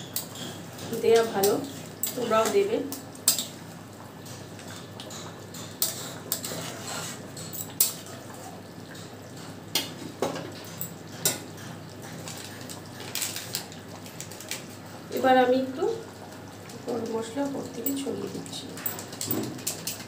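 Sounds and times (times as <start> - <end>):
wooden spatula scraping metal pan: 5.8 - 7.3.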